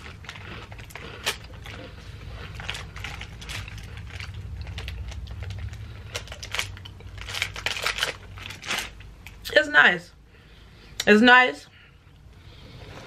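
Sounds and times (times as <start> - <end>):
packaging crackling: 0.0 - 9.4
person chewing biscuit: 0.0 - 9.4.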